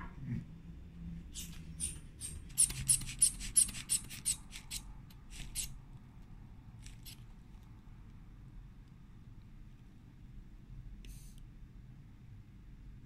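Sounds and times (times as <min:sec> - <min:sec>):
inflation bulb puffs of air: 0:11.1 - 0:11.4.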